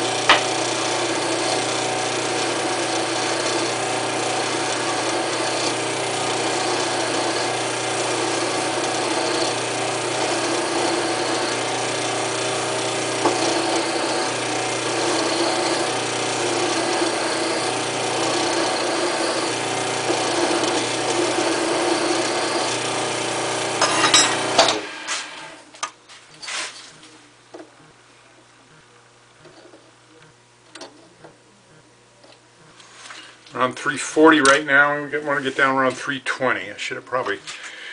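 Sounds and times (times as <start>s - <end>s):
file scraping spinning metal bar: 0.0s - 24.8s
wood lathe running: 0.0s - 25.6s.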